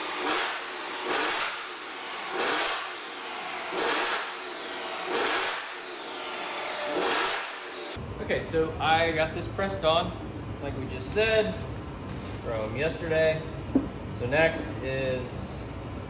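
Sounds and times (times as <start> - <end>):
car engine revving: 0.0 - 8.0.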